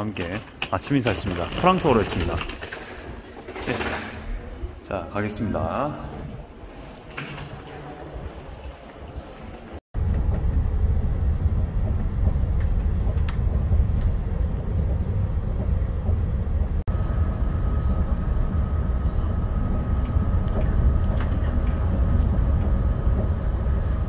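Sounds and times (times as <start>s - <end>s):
train rumbling inside carriage: 5.4s - 24.0s.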